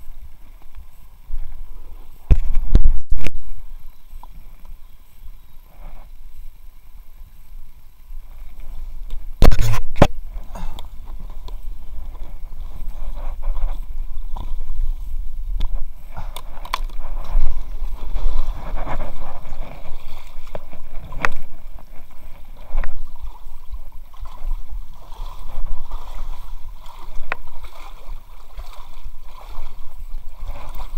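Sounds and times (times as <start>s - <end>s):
paddle splashing in water: 8.2s - 30.9s.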